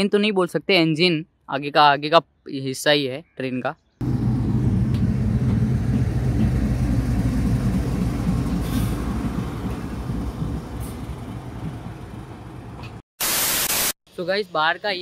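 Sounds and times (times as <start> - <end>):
diesel locomotive engine drone: 4.0 - 13.0.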